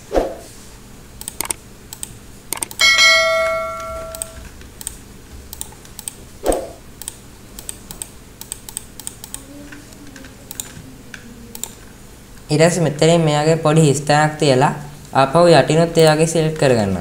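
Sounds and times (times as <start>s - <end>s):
mouse or keyboard clicking: 1.2s - 2.8s, 4.1s - 9.4s, 10.0s - 10.8s
short ringing chime: 2.8s - 4.4s.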